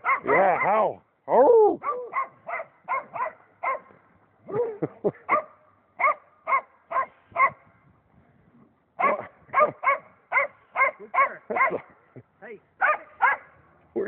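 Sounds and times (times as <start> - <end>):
dog whining yelps: 0.0 - 0.8, 1.8 - 3.8, 9.0 - 11.8
dog barking: 0.0 - 0.9, 1.8 - 4.0, 5.3 - 7.6, 9.0 - 12.0, 12.8 - 13.6.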